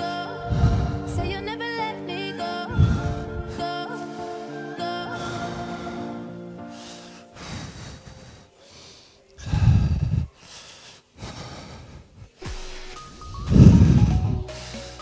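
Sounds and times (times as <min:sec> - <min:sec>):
background music: 0:00.0 - 0:09.1, 0:12.4 - 0:15.0
man breathing hard: 0:00.4 - 0:01.4, 0:02.7 - 0:04.6, 0:05.2 - 0:12.8, 0:13.8 - 0:15.0.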